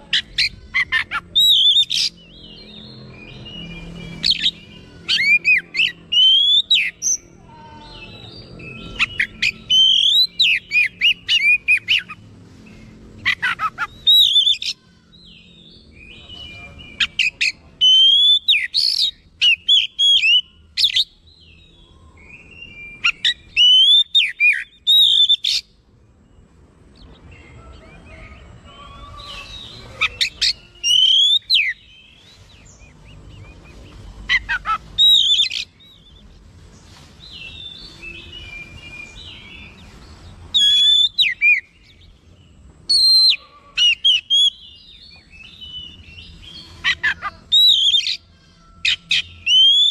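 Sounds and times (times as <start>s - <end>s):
bird singing whistled phrases: 0.2s - 2.8s, 3.6s - 7.2s, 14.0s - 14.8s, 17.2s - 21.1s, 22.2s - 25.6s, 30.1s - 32.0s, 34.4s - 36.1s, 40.6s - 41.7s, 49.1s - 49.9s.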